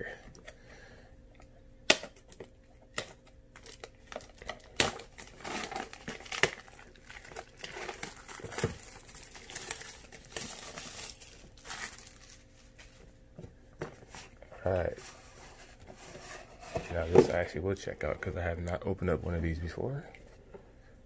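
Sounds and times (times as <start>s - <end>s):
plastic wrap crinkling and tearing: 3.0s - 13.0s.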